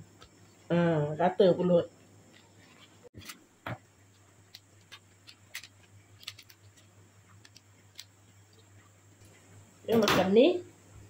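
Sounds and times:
hands folding leaf parcel: 0:04.5 - 0:08.1.

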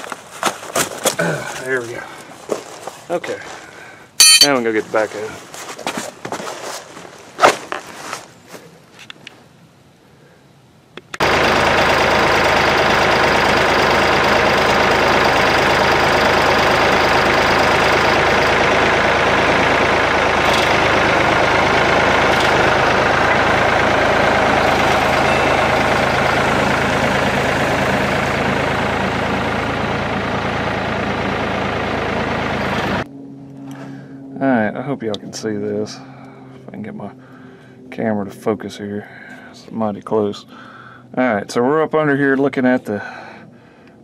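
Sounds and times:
backhoe engine running: 0:11.2 - 0:34.4.

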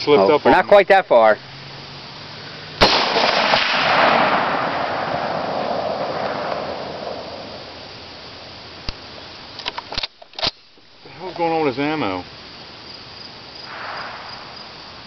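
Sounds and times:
rifle shot with long echo: 0:02.8 - 0:08.0, 0:13.7 - 0:14.9.

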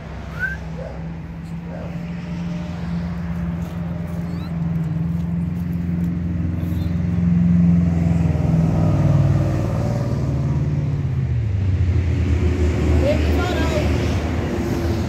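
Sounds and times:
vehicle engine droning: 0:00.0 - 0:15.0.

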